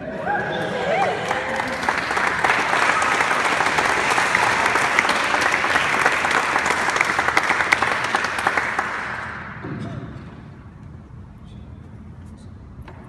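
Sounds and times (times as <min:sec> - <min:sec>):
crowd applauding: 0:00.0 - 0:09.6.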